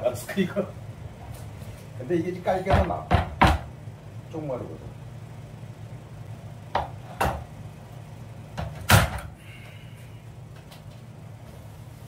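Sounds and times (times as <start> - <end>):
vinyl planks knocking on floor: 2.7 - 3.7.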